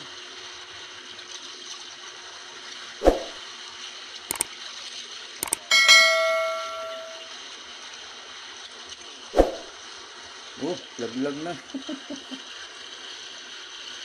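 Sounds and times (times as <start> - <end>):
mouse clicks: 5.4 - 5.7
bell chime: 5.5 - 7.3.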